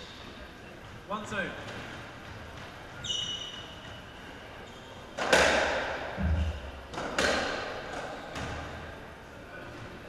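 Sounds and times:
ball struck and hitting wall: 5.2s - 7.7s.

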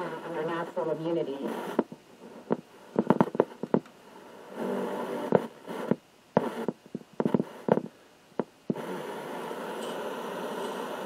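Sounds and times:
radio loudspeaker hiss and crackle: 0.0s - 11.0s
sharp clicks and pops: 1.7s - 4.0s, 5.3s - 8.8s.

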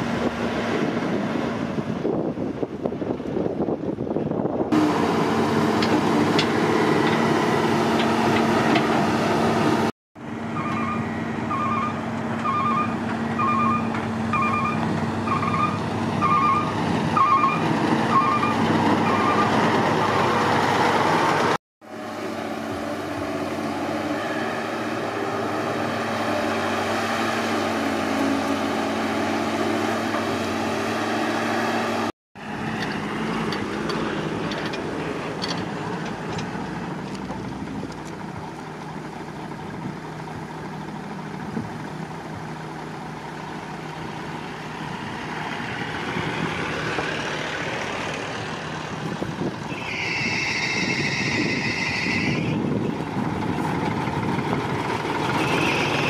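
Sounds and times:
dump truck driving: 0.0s - 56.0s
reversing alarm beeping: 10.6s - 19.5s
excavator digging: 32.4s - 38.8s, 46.2s - 56.0s.

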